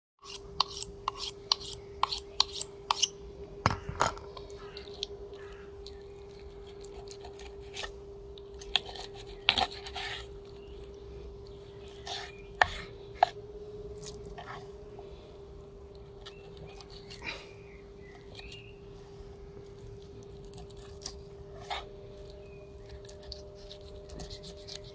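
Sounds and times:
knife stroked on sharpening steel: 0.2 - 3.1
steady hum: 0.2 - 24.9.

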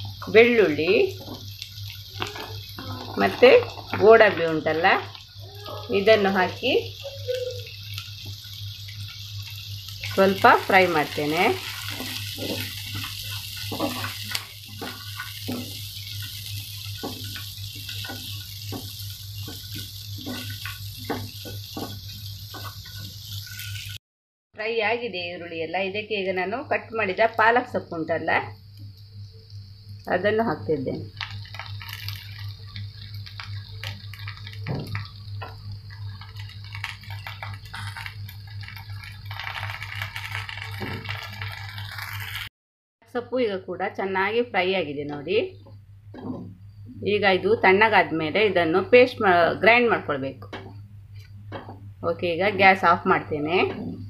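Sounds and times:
food sizzling in hot oil: 0.0 - 24.0, 24.9 - 42.5, 44.0 - 54.0
spatula scraping and tapping pan: 11.6 - 23.2.

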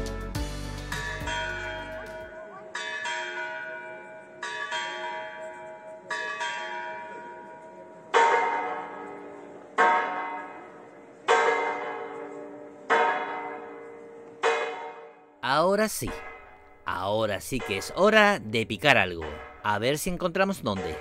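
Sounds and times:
deeper bell striking: 0.9 - 2.4
higher bell chiming: 0.9 - 5.2.

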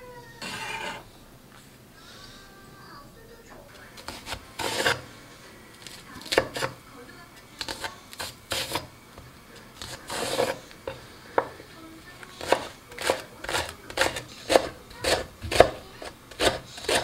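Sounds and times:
knife chopping on wooden board: 4.0 - 5.1, 5.8 - 6.8, 7.6 - 8.9, 9.8 - 11.6, 12.4 - 17.0.

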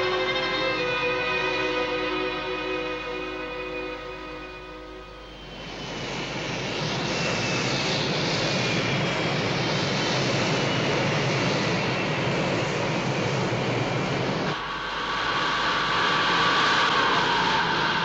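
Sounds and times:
string music: 0.0 - 5.4
faint falling whine: 14.0 - 18.0.

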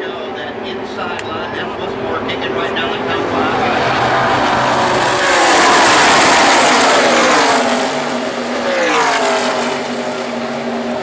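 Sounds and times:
race trucks passing at speed: 0.1 - 11.0.

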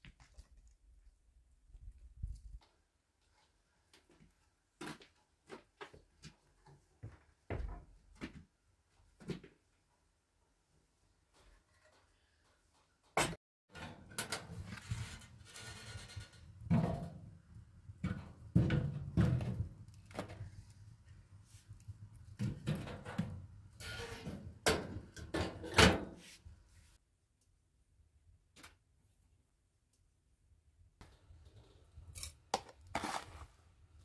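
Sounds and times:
firewood clattering into metal stove: 18.0 - 20.4.

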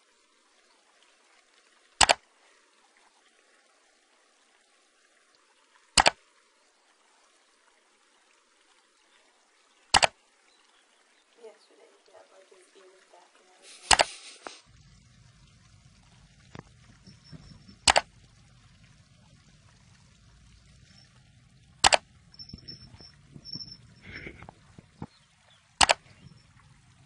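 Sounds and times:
faint low hum: 14.6 - 27.0
faint high chirps: 16.0 - 18.1, 19.3 - 27.0.

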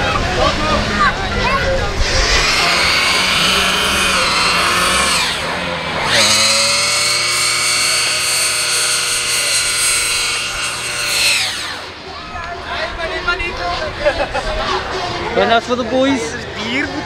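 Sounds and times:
car engine revving high: 1.9 - 9.4.

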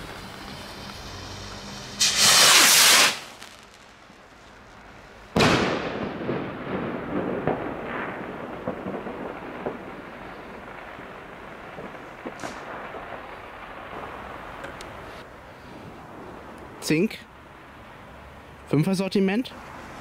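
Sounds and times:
firework bang: 0.0 - 4.2, 5.3 - 15.2
firework launch hiss: 0.0 - 4.6
small scattered pops: 9.6 - 15.2.

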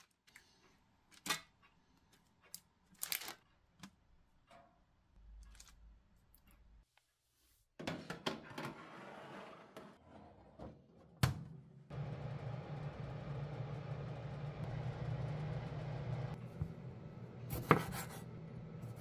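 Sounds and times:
metal baking tray scraping and clattering: 8.4 - 10.5
oven fan humming: 11.9 - 19.0.

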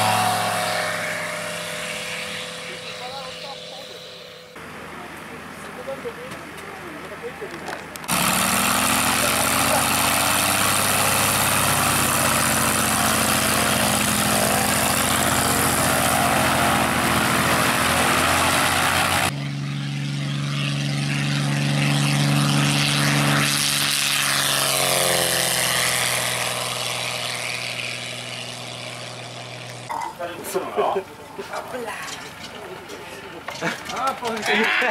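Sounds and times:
propeller plane engine droning: 0.0 - 34.9.

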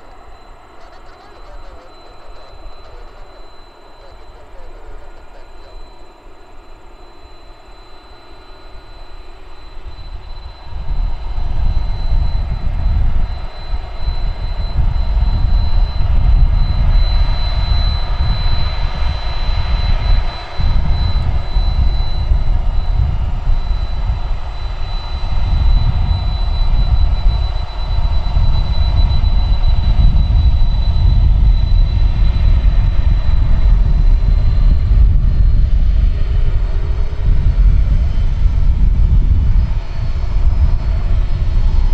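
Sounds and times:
jet engines whining and rumbling: 0.0 - 41.9.

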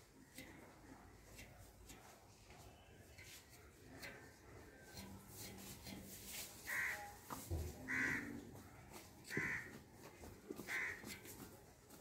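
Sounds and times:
crow cawing: 6.7 - 7.2, 7.9 - 8.4, 9.3 - 9.8, 10.6 - 11.2.

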